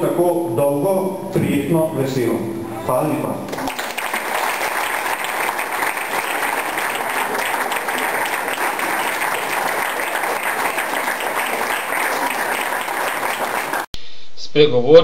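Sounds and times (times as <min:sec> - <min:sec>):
audience applauding: 0:03.5 - 0:13.9.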